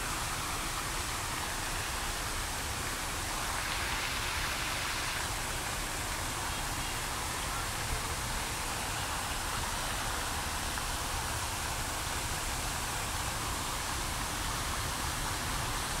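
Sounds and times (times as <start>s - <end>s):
fountain water splashing: 0.0s - 16.0s.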